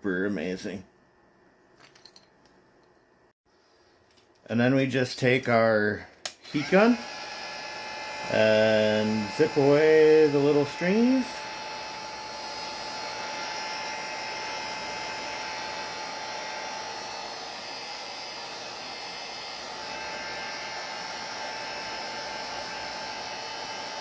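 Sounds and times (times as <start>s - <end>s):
heat gun blowing: 6.2s - 24.0s.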